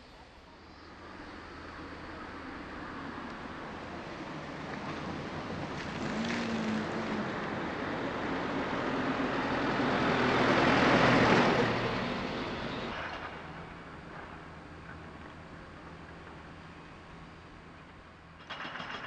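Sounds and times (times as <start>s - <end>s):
truck driving past: 0.9s - 19.0s
car driving past: 3.1s - 13.3s.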